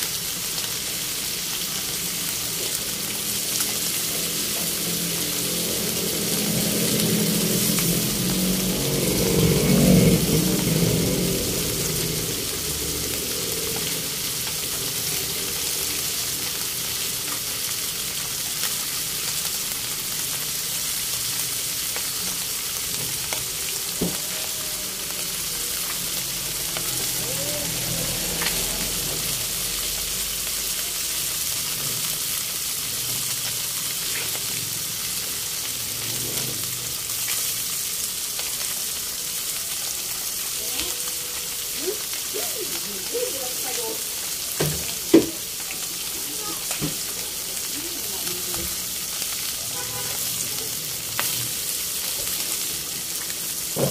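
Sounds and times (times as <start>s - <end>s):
fish frying in hot oil: 0.0s - 53.9s.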